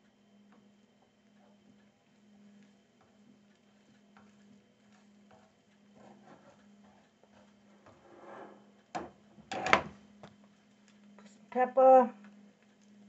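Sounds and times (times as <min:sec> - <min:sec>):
spatula scraping frying pan: 0:07.4 - 0:08.7.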